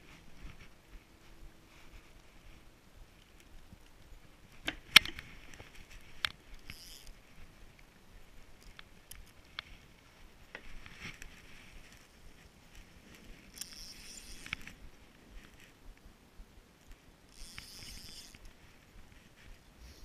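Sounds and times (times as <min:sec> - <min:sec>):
fishing reel clicks and knocks: 0:06.2 - 0:07.2, 0:13.4 - 0:14.8, 0:16.8 - 0:18.6.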